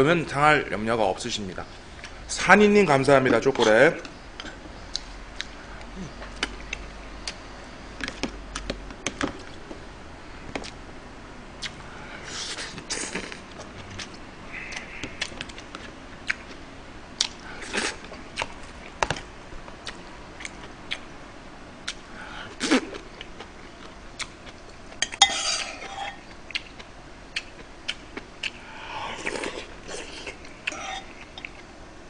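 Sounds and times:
chewing: 25.7s - 31.7s.

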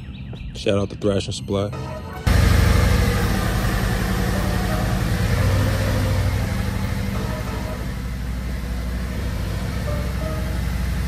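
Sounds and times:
motorcycle engine running at low revs: 2.3s - 11.0s.

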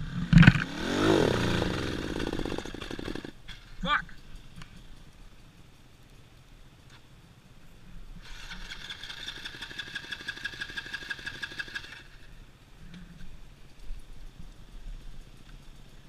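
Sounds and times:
dirt bike engine running: 0.0s - 3.4s, 8.2s - 12.2s.

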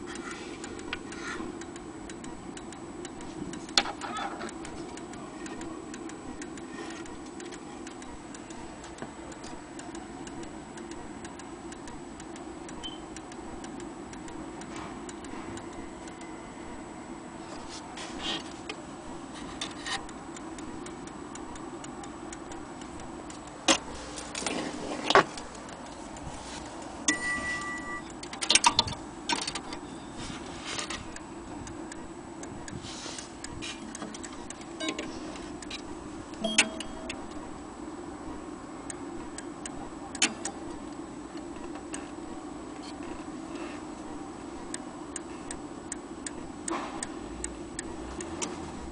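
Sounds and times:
mantel clock ticking: 0.0s - 17.8s, 18.4s - 29.9s, 31.0s - 37.6s, 38.8s - 48.9s
knocks and clicks of handling: 23.3s - 29.8s.

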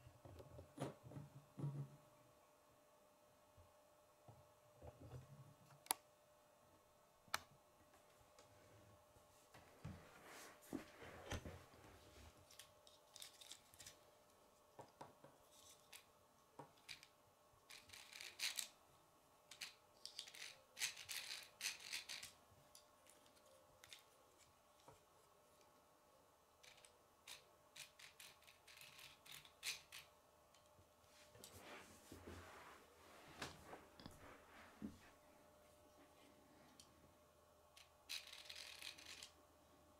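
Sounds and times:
plastic pieces clicking and rattling: 12.5s - 14.0s, 16.7s - 18.8s, 19.5s - 24.2s, 26.6s - 30.7s, 37.8s - 39.4s.

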